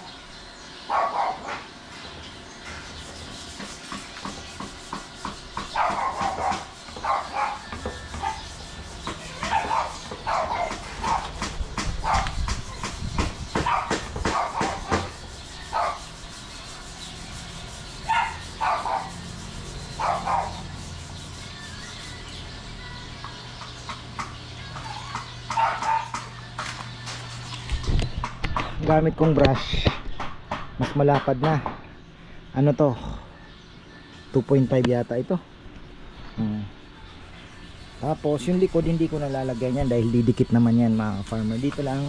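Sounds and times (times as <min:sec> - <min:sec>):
dog barking: 0:00.9 - 0:01.6, 0:05.7 - 0:08.4, 0:09.4 - 0:11.4, 0:12.0 - 0:12.4, 0:13.6 - 0:15.0, 0:18.1 - 0:19.2, 0:20.0 - 0:20.6, 0:25.5 - 0:26.2.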